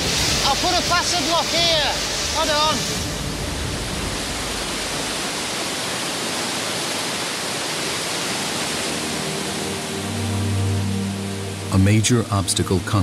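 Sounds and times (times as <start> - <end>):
underground river rushing: 0.0 - 13.0
low sustained music notes: 8.2 - 13.0.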